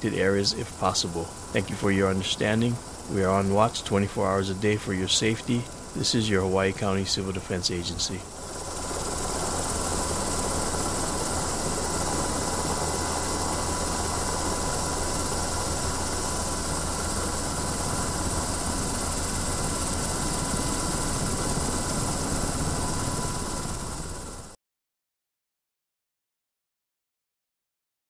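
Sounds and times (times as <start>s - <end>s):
faint steady whine: 0.0s - 24.6s
helicopter rushing drone: 0.0s - 24.6s.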